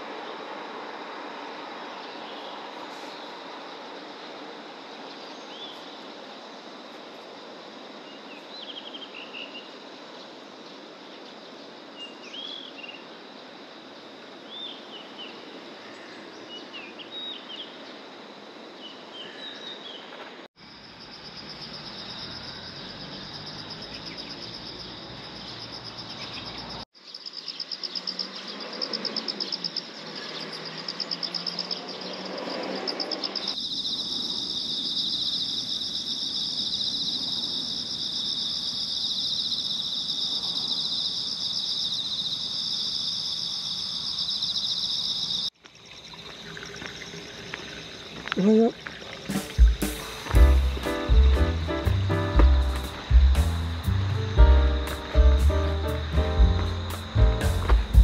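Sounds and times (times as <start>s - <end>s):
insects trilling: 0.0s - 58.0s
lower insect trill: 20.6s - 58.0s
steady hiss: 48.8s - 58.0s.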